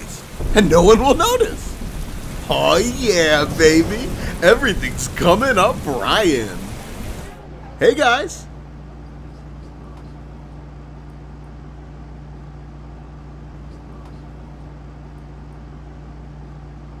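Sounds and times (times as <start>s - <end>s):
even hiss: 0.0s - 7.4s
low background hum: 0.0s - 17.0s.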